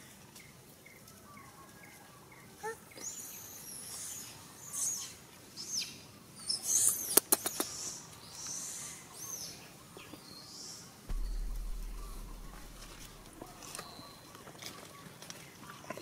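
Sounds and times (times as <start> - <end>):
low rumble: 11.1 - 14.0.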